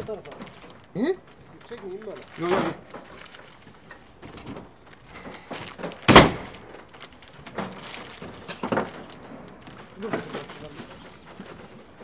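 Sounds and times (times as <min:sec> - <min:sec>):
knocks and thunks: 0:04.2 - 0:06.7.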